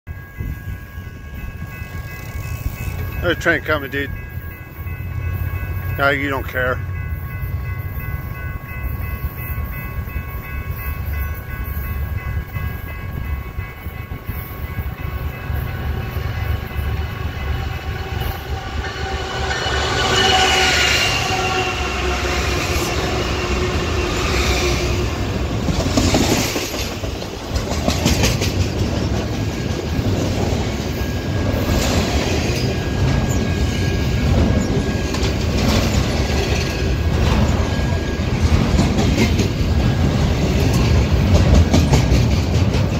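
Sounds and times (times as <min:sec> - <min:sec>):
diesel locomotive passing: 0:00.1 - 0:42.9
freight cars rumbling: 0:12.1 - 0:42.9
wheels clicking over rails: 0:25.5 - 0:42.9.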